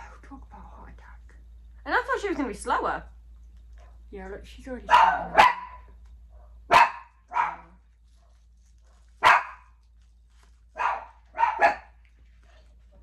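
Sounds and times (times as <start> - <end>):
dogs barking: 4.8 - 9.8, 10.8 - 12.0.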